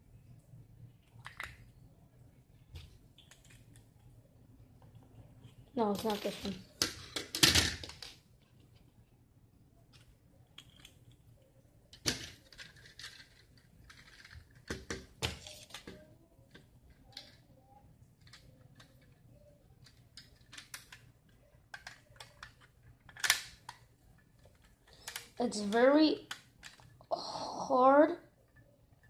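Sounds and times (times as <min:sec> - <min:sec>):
toy gun parts clicking and rattling: 0:01.0 - 0:01.7, 0:05.8 - 0:08.2, 0:09.9 - 0:11.3, 0:12.0 - 0:17.5, 0:18.1 - 0:27.0.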